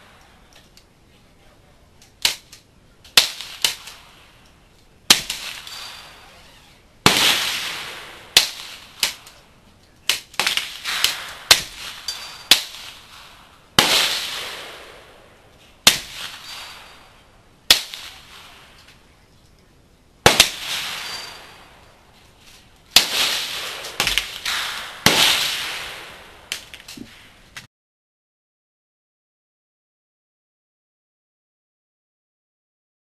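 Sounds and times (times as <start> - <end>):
bullets hitting steel target: 5.1 - 6.3, 10.0 - 13.1, 15.9 - 19.0, 20.3 - 21.8, 23.0 - 25.9
rifle shots: 5.1 - 6.4, 7.0 - 9.4, 10.1 - 18.8, 20.2 - 21.9, 22.9 - 27.3.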